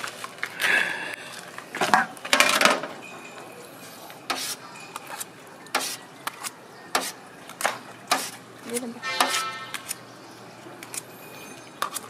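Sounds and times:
plastic cups crinkling and clacking: 0:04.1 - 0:10.0, 0:10.6 - 0:12.0
scoop scraping against metal bucket: 0:09.0 - 0:09.9.

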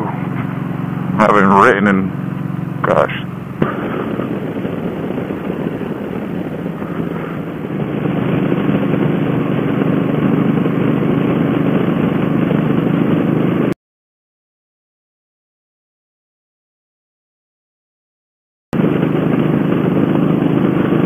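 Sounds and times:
motorcycle engine cruising: 0:00.0 - 0:13.8, 0:18.8 - 0:21.0
rushing wind: 0:02.2 - 0:13.7, 0:18.8 - 0:21.0.

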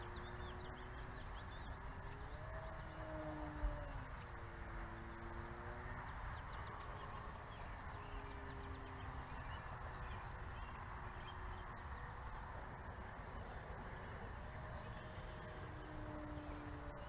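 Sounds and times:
distant model plane motor drone: 0:00.0 - 0:17.0
small birds chirping: 0:00.0 - 0:17.0.

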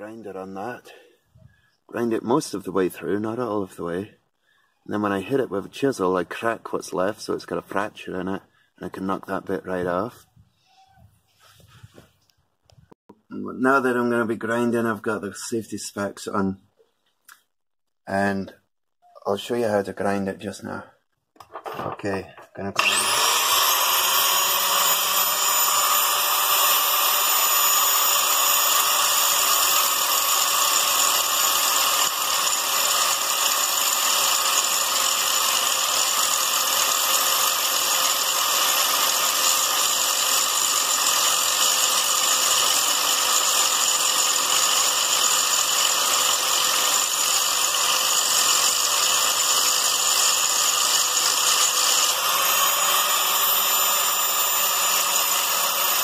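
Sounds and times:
angle grinder grinding metal: 0:21.5 - 0:56.0.

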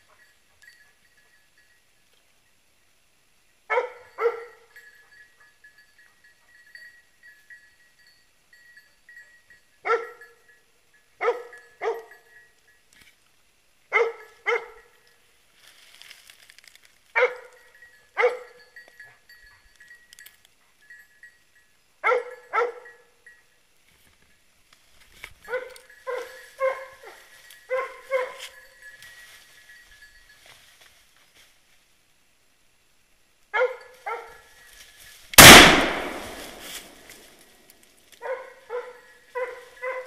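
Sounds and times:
dog barking: 0:03.7 - 0:04.7, 0:09.8 - 0:10.2, 0:11.2 - 0:12.1, 0:13.9 - 0:14.9, 0:17.2 - 0:17.5, 0:18.2 - 0:18.6, 0:22.0 - 0:23.0, 0:25.5 - 0:28.5, 0:33.6 - 0:34.5, 0:38.2 - 0:40.0.

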